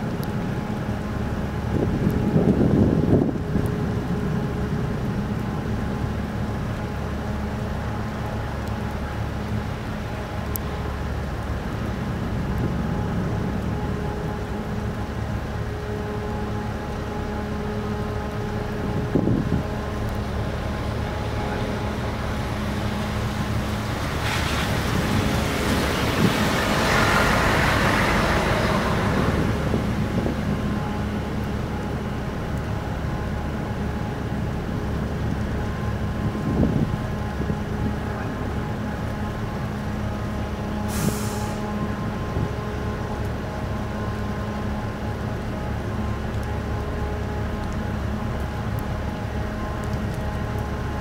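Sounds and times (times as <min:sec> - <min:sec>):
rushing noise: 0:00.0 - 0:44.9
ship engines droning: 0:00.0 - 0:51.0
short sharp hiss: 0:40.9 - 0:41.6.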